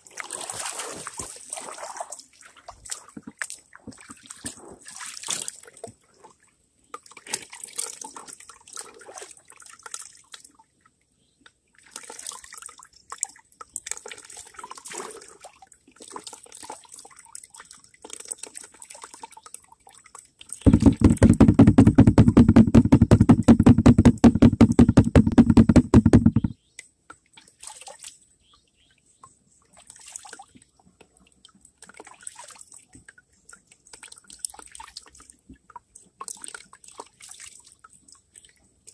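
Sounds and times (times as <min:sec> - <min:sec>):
loud fast pulsing: 0:20.7 - 0:26.5.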